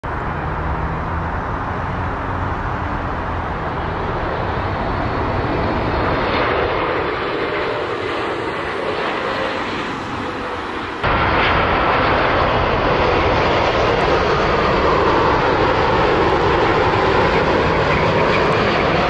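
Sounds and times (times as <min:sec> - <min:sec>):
jet engines whooshing: 0:00.0 - 0:19.0.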